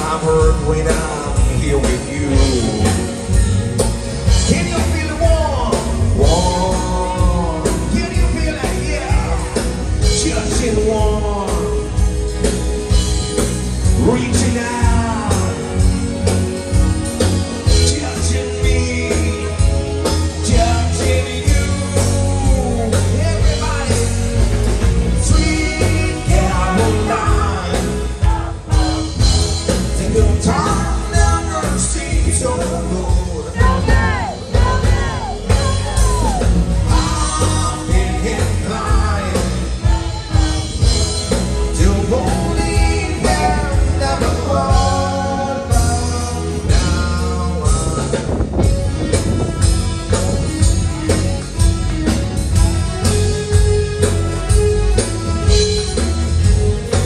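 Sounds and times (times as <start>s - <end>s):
person singing: 0.0s - 3.4s, 4.3s - 12.3s, 17.7s - 24.3s, 25.2s - 48.8s
electric bass guitar: 0.0s - 57.0s
live band playing: 0.0s - 57.0s.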